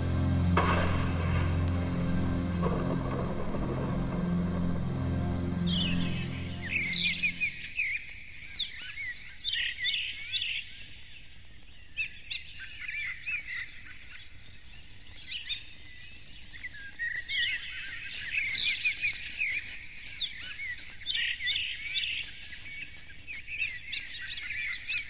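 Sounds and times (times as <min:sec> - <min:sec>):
songbirds singing: 0:14.4 - 0:25.0
bird rattling trills: 0:17.1 - 0:25.0.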